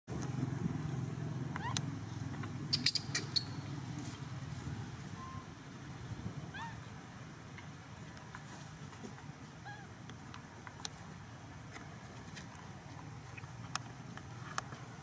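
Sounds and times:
baby monkey squeak: 0:01.6 - 0:01.8, 0:02.6 - 0:03.6, 0:06.5 - 0:06.8
sharp clicks: 0:01.7 - 0:03.6.

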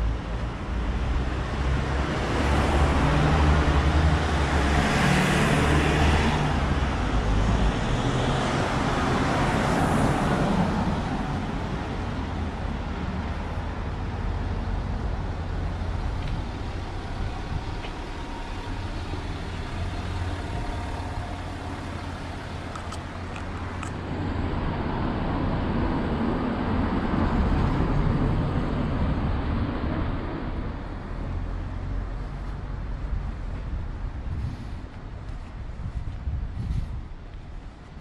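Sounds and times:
car engines: 0:00.0 - 0:38.0
vehicle passing close by: 0:00.8 - 0:12.1.

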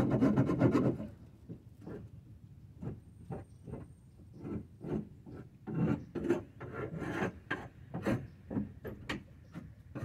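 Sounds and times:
hand scraper rasping: 0:00.0 - 0:01.1, 0:04.4 - 0:08.6.

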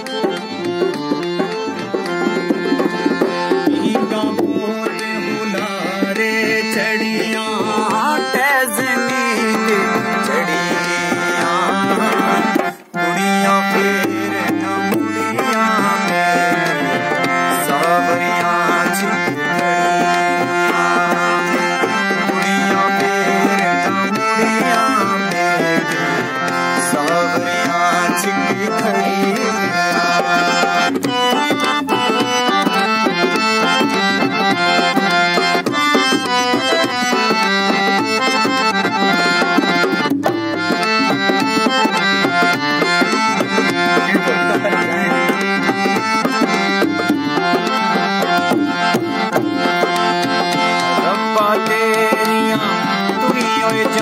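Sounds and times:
harmonium chords and melody: 0:00.0 - 0:54.0
tabla rhythm: 0:00.0 - 0:54.0.

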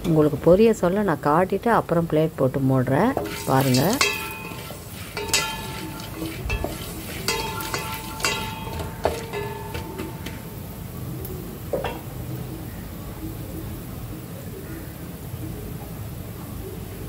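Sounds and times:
popcorn kernels rattling: 0:03.2 - 0:10.4
spoon knocking against metal pot: 0:03.2 - 0:10.6, 0:11.7 - 0:12.2
steady hiss: 0:03.2 - 0:15.3.

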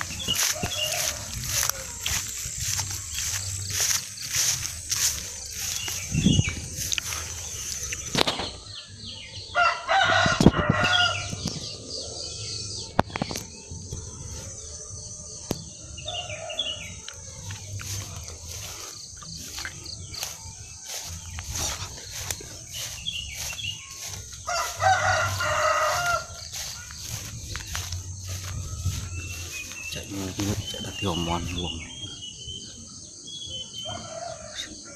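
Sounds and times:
rooster crowing: 0:00.0 - 0:06.0, 0:09.5 - 0:11.3, 0:16.0 - 0:29.8, 0:33.8 - 0:34.9.

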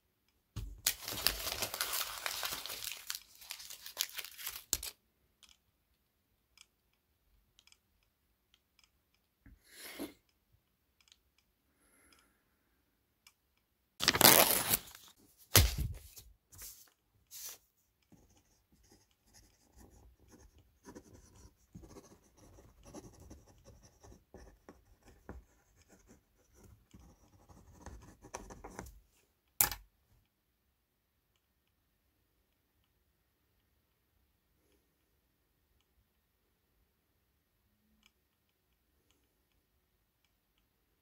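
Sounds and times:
pen scratching on paper: 0:18.2 - 0:28.8.

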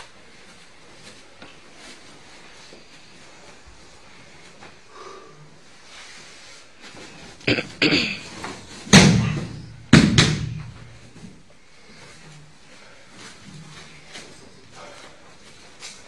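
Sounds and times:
body thudding onto mats: 0:08.3 - 0:11.4
slaps on the mat: 0:08.8 - 0:11.0.

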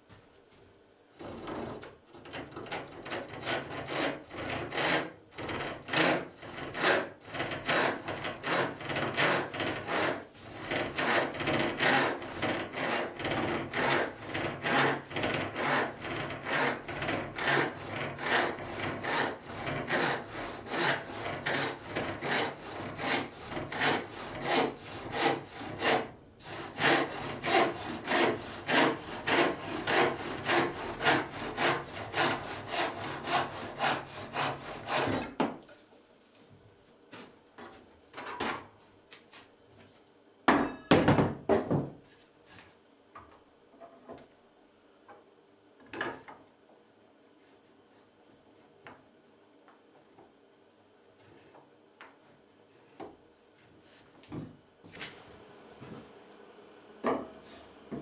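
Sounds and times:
handsaw rasping through wood: 0:02.7 - 0:35.3.

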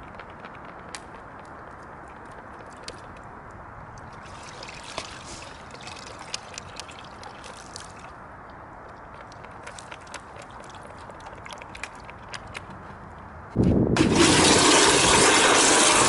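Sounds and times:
water dripping into a plastic bucket: 0:00.0 - 0:12.7.

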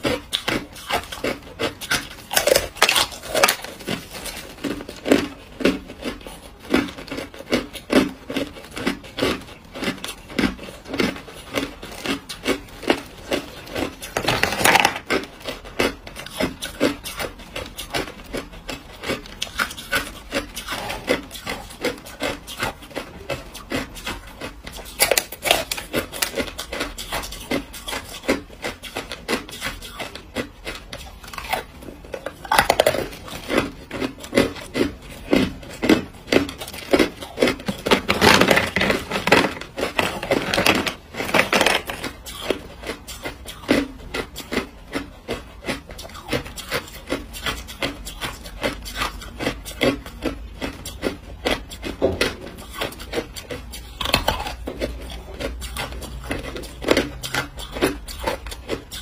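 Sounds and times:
ice being crunched: 0:00.0 - 0:05.3, 0:13.8 - 0:15.2, 0:32.3 - 0:42.6.

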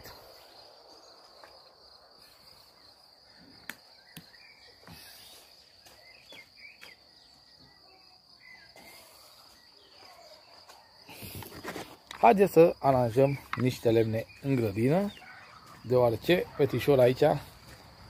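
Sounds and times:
faint chirps: 0:00.0 - 0:17.8
insects trilling: 0:00.0 - 0:18.0.

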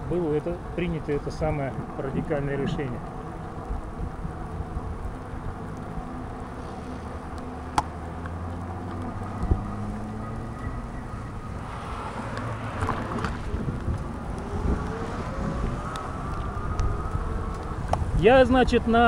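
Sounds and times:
electric bike motor hum: 0:00.0 - 0:19.0
tyres on wet road: 0:00.0 - 0:19.0
wind noise: 0:09.0 - 0:19.0.

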